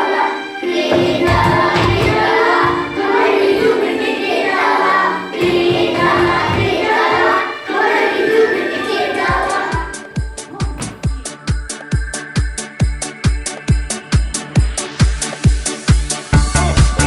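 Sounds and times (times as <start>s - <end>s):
children singing: 0.0s - 11.4s
backing track with steady beat: 0.7s - 7.6s.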